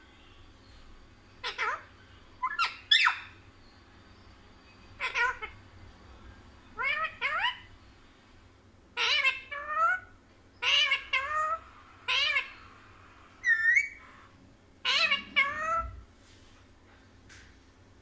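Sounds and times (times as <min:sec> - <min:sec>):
parakeet calling: 0:01.3 - 0:08.0, 0:08.9 - 0:16.1.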